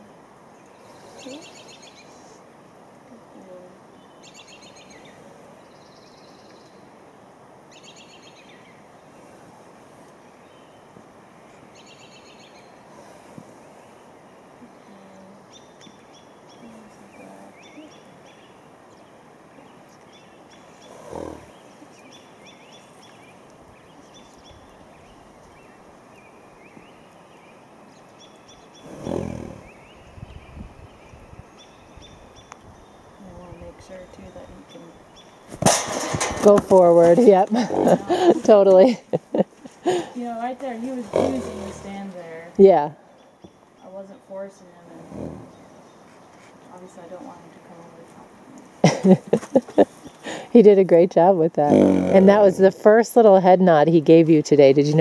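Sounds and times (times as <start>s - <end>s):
songbirds singing: 0.0s - 55.0s
horse snorting: 20.8s - 21.6s, 28.8s - 29.8s, 35.6s - 39.1s, 40.9s - 42.3s, 44.9s - 45.6s, 51.6s - 52.8s.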